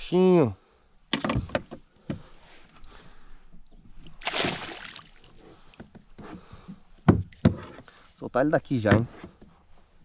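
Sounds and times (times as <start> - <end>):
water splashing from thrashing fish: 4.2 - 5.4.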